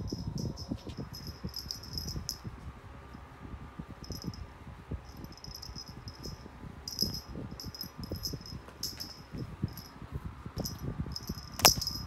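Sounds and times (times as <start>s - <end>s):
small bell jingling: 0.0s - 2.5s, 4.0s - 4.4s, 5.1s - 10.0s, 10.6s - 12.0s
bedding rustling: 5.4s - 12.0s.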